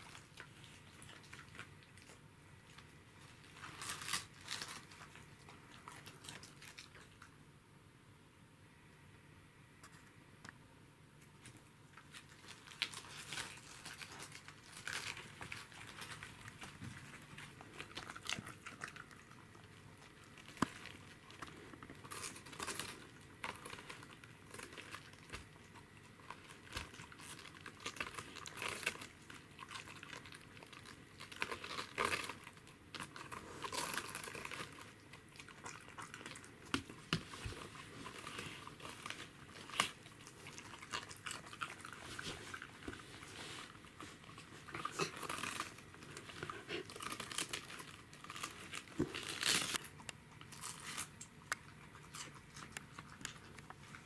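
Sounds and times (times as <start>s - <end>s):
dog chewing cabbage leaves: 0.0s - 7.3s, 11.9s - 54.0s
leaves crinkling: 37.0s - 49.9s.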